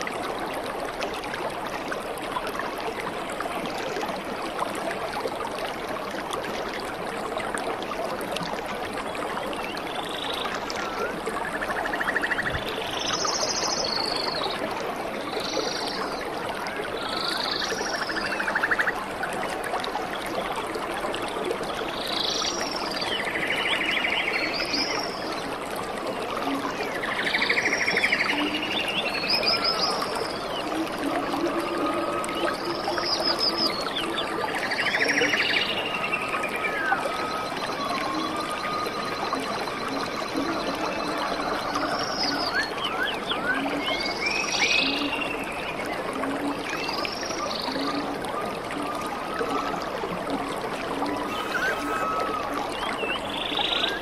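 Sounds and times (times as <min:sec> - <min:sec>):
stream and waterfall rushing: 0:47.6 - 0:54.0
buzzy trilling animal calls: 0:51.3 - 0:52.6.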